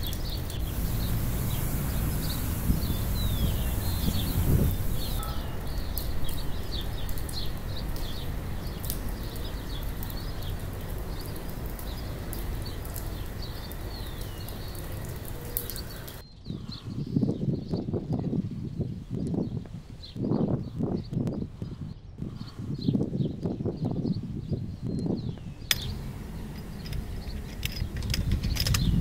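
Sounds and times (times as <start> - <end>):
low outdoor rumble: 0.0 - 13.9, 25.7 - 29.0
small birds chirping: 0.0 - 29.0
wind buffeting microphone: 0.0 - 29.0.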